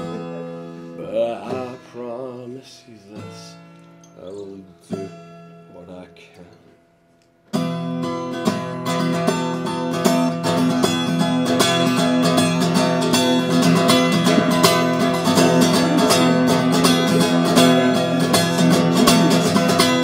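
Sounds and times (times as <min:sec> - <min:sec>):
acoustic guitar strumming: 0:00.0 - 0:20.0.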